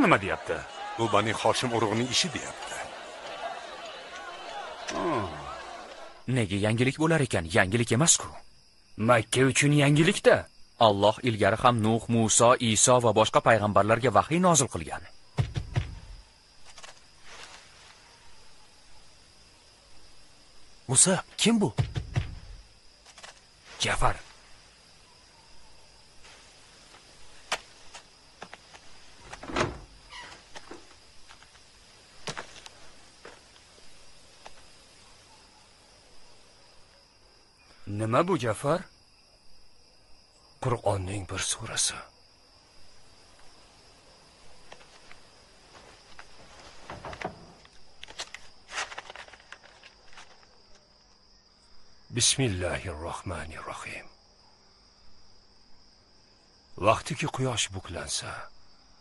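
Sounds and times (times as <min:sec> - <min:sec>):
crickets chirping: 0:00.0 - 0:59.0
dull door thump: 0:15.4 - 0:16.2, 0:21.8 - 0:22.6, 0:29.2 - 0:30.0, 0:46.8 - 0:47.6
scroll rustling as it unrolls: 0:16.6 - 0:17.7, 0:23.0 - 0:23.4, 0:44.6 - 0:51.2
wooden door knocks and clicks: 0:29.2 - 0:30.0, 0:46.9 - 0:47.7.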